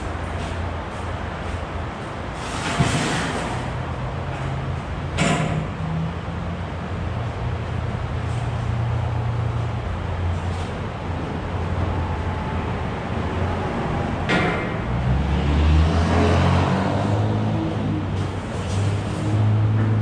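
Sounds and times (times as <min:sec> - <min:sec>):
sharp metal knocks: 0:05.1 - 0:05.8.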